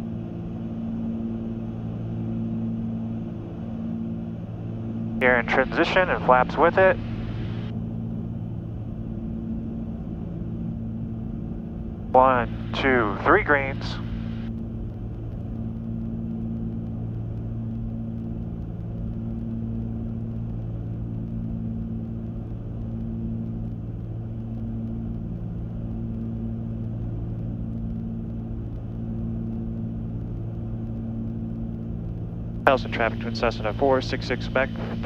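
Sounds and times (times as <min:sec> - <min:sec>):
propeller aircraft engines droning: 0:00.0 - 0:35.0.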